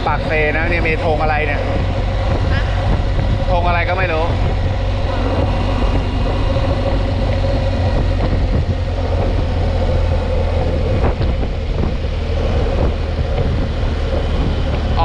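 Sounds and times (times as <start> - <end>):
motorcycle engine running: 0.0 - 15.0
wind noise: 0.0 - 15.0.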